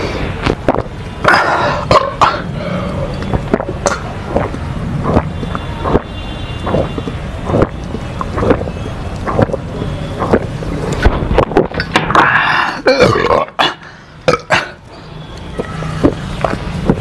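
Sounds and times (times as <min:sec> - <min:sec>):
man burping loudly: 0:12.0 - 0:14.8.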